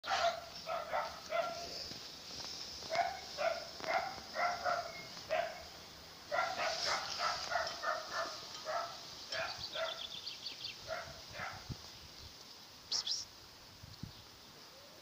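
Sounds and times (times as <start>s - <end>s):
dog yapping: 0.0s - 1.7s, 2.9s - 5.6s, 6.3s - 10.0s.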